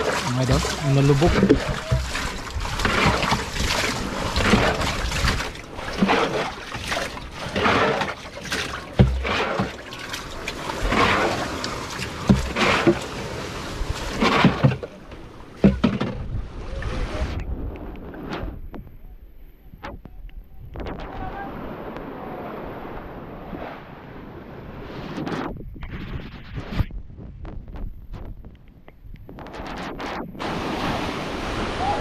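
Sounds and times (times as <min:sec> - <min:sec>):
wind buffeting microphone: 0:00.0 - 0:06.0, 0:15.0 - 0:32.0
water sloshing in boat hull: 0:00.0 - 0:17.4
small waves washing onto beach: 0:00.0 - 0:18.6, 0:20.8 - 0:25.5, 0:29.3 - 0:32.0.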